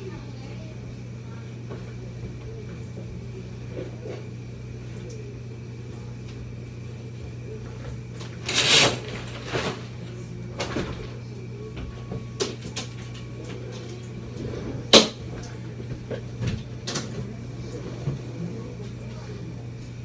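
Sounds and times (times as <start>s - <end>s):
steady low hum: 0.0s - 20.0s
loud rustling and scraping: 8.2s - 10.0s, 13.8s - 15.3s.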